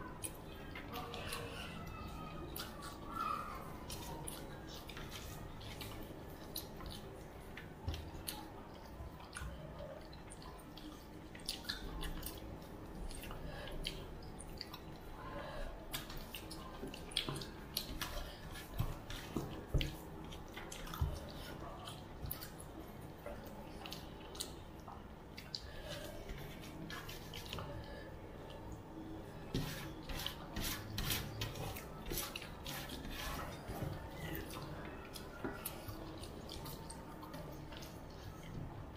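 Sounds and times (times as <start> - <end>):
chewing and lip smacking: 2.5 - 15.1, 15.9 - 28.6, 33.6 - 38.6.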